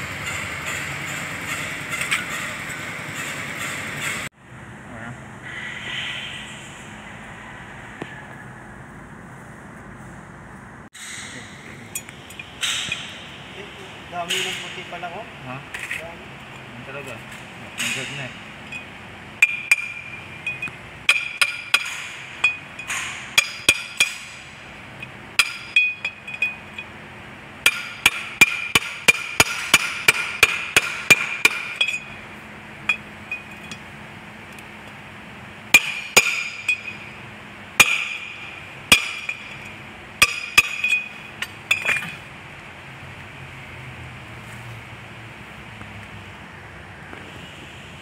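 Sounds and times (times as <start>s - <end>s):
hammer striking metal: 11.0s - 13.4s, 14.2s - 15.1s, 17.8s - 26.9s, 27.6s - 32.2s, 35.7s - 37.2s, 37.8s - 42.2s.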